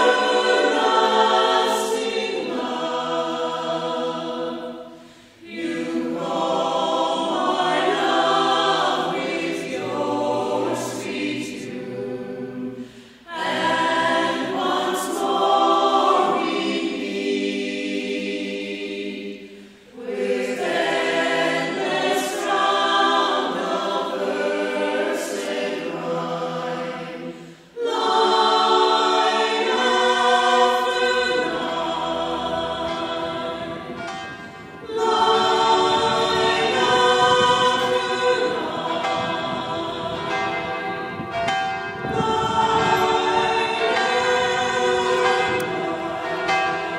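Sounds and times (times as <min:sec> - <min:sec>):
choir singing: 0:00.0 - 0:46.9.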